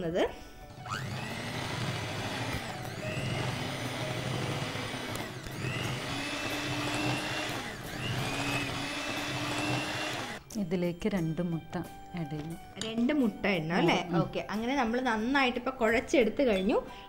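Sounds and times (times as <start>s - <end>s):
electric hand mixer whining: 0.7s - 10.4s.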